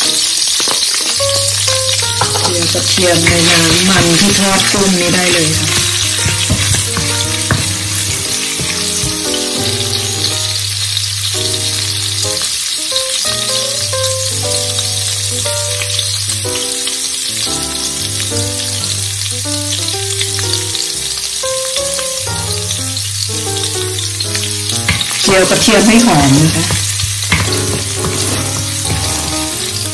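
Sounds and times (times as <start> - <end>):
background music: 0.0 - 29.9
garlic sizzling in hot oil: 0.0 - 29.9.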